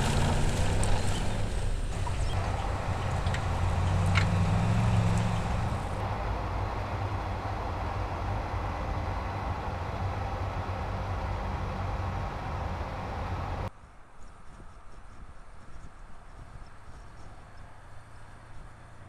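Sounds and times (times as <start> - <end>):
truck engine pulling: 0.0 - 13.7
tyres on loose dirt: 0.0 - 19.0.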